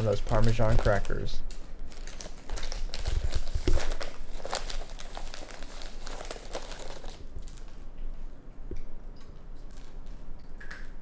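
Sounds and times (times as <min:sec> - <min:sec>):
raccoon crinkling plastic bag: 0:00.0 - 0:07.9.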